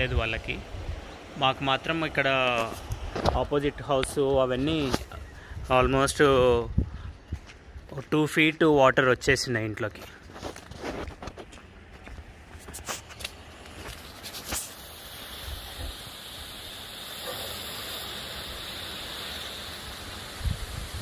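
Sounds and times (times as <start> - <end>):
water pouring through drain: 14.4 - 21.0.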